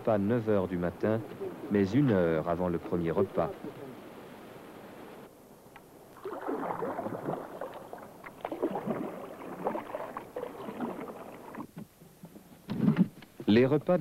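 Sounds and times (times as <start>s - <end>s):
water sloshing around rowed boat: 5.8s - 13.2s.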